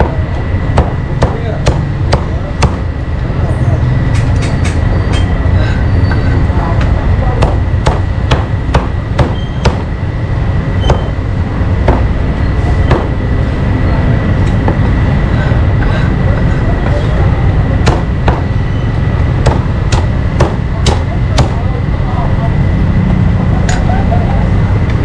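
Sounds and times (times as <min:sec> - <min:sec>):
low rumble of street traffic: 0:00.0 - 0:25.0
cleaver chopping meat: 0:00.8 - 0:02.9, 0:07.4 - 0:09.9, 0:11.9 - 0:12.1, 0:17.8 - 0:18.5, 0:19.4 - 0:21.6.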